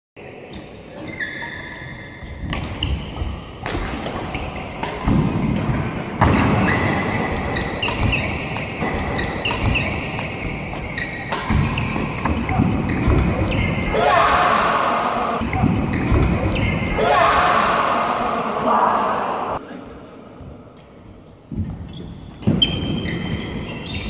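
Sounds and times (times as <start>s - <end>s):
rackets hitting shuttlecock: 2.4s - 16.9s.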